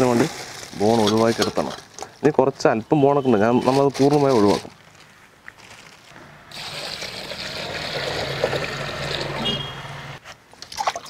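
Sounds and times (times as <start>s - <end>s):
water pouring into steel bowl: 6.5s - 9.5s.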